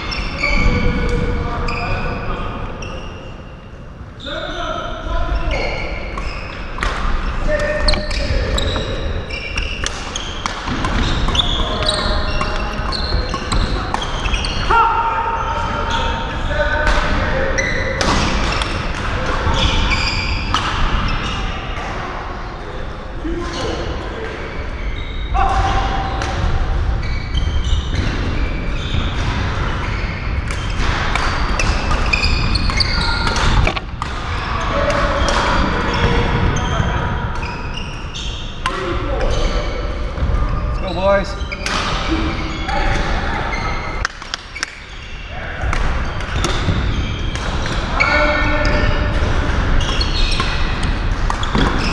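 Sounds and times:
court shoes squeaking: 0.0s - 4.5s, 5.3s - 51.9s
din of play from other courts: 0.0s - 51.9s
shoes squeaking on wooden floor: 5.5s - 14.7s, 31.6s - 38.6s
rackets hitting shuttlecock: 6.1s - 14.4s, 30.4s - 36.2s, 45.6s - 48.0s, 48.6s - 51.9s
rackets striking shuttlecock: 30.4s - 34.3s.

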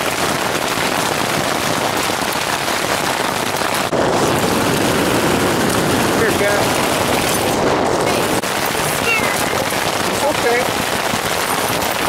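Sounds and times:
hail and rain on tent fabric: 0.0s - 12.0s.

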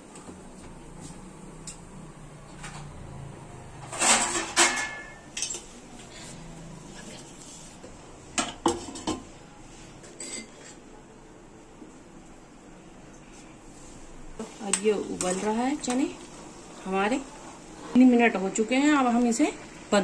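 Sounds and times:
steel pan and lid clinking: 4.0s - 5.6s.

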